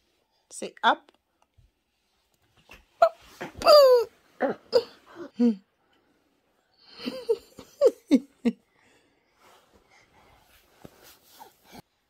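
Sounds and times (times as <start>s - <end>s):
toddler babbling and squealing: 3.0s - 4.1s.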